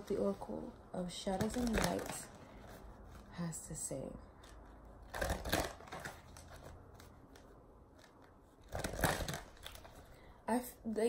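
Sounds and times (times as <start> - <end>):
cards shuffling: 1.2 - 3.3, 4.4 - 10.2.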